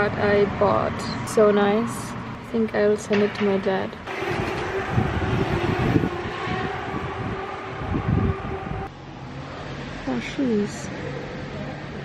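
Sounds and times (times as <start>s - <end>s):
rumble of passing vehicles: 0.0s - 12.0s.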